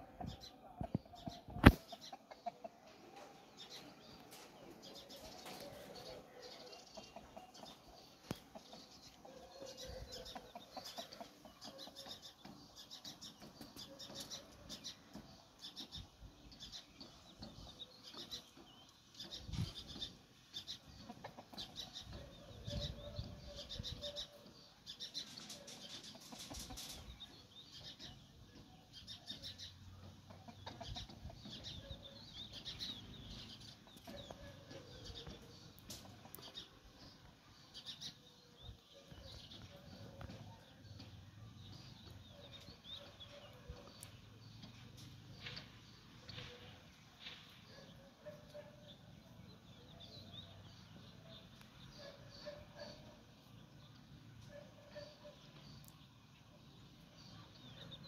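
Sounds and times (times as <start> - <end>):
hens clucking softly: 0.0 - 16.0, 19.2 - 24.6, 25.2 - 38.1.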